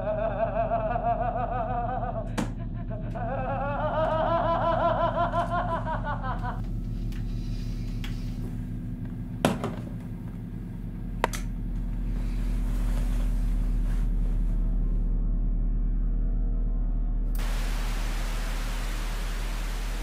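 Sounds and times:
man giggling: 0.0 - 6.7
low steady hum: 0.0 - 20.0.

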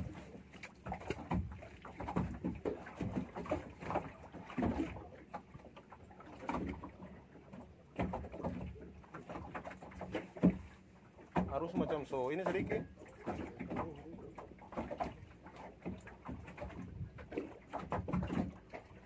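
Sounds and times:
water noise: 0.0 - 19.0
knocks against boat hull: 0.9 - 3.7, 9.4 - 10.7.

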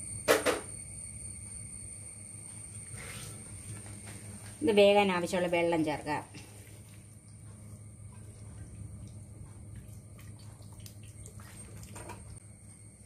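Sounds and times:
water trickling over vegetables: 6.6 - 12.4.

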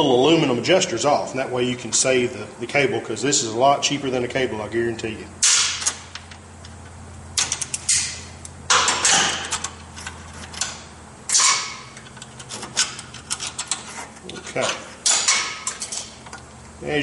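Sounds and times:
metal parts clinking and rattling: 7.4 - 16.4.

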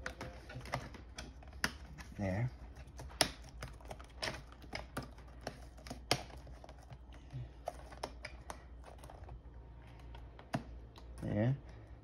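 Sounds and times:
laptop keyboard clicking: 2.8 - 9.4.

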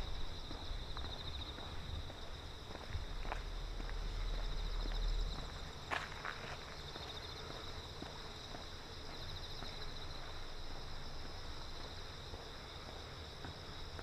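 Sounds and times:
low rumble: 0.0 - 6.5
footsteps on pavement: 0.0 - 14.0
insects chirping: 0.0 - 14.0.

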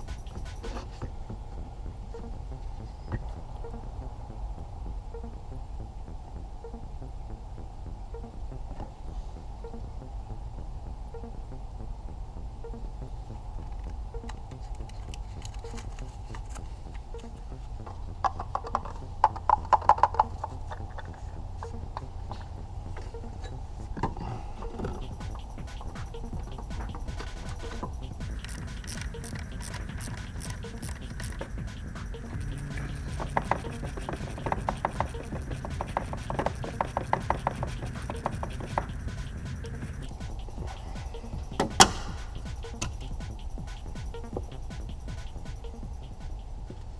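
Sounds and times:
steady low hum: 0.0 - 46.9
ratchet wrench clicking: 28.2 - 38.9.

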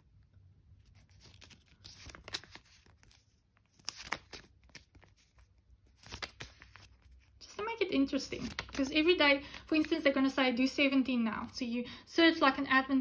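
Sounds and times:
paper sheets rustling: 0.8 - 10.1.

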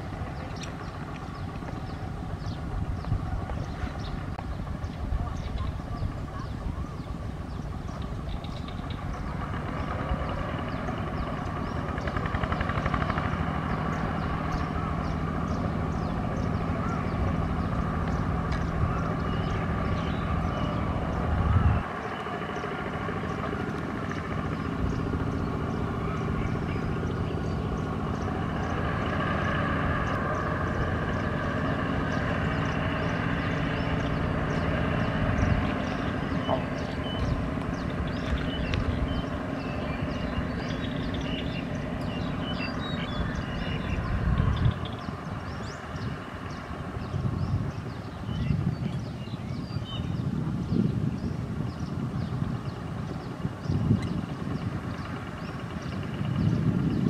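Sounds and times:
wheels churning through mud and water: 0.0 - 48.8
diesel tractor engine under load: 7.4 - 48.8.

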